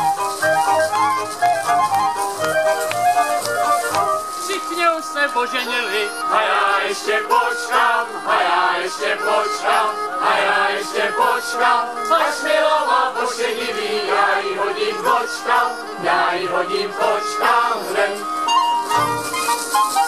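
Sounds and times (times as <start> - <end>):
clarinets: 3.3 - 20.0
men and women singing in chorus: 5.8 - 18.4.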